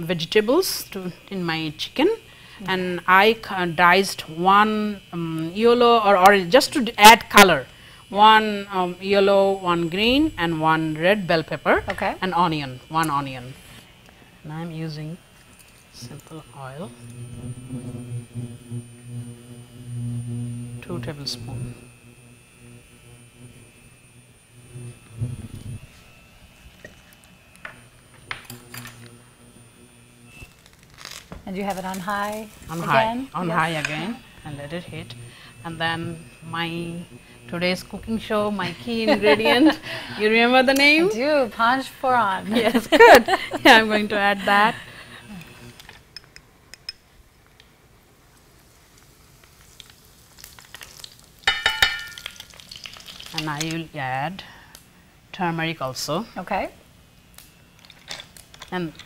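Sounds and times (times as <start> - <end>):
faint high whine: 0.0 - 47.4
induction cooktop humming: 0.0 - 59.0
seeds sizzling in hot oil: 15.4 - 26.9, 27.6 - 41.0, 47.6 - 54.8
measuring spoon clinking: 51.5 - 52.4.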